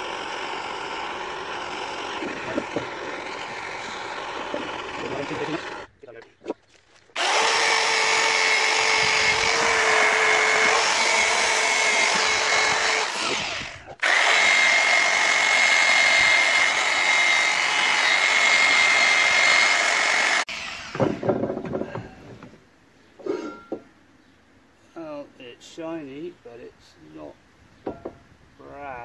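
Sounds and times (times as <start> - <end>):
electric drill motor whine: 0.0 - 5.9, 7.2 - 21.2.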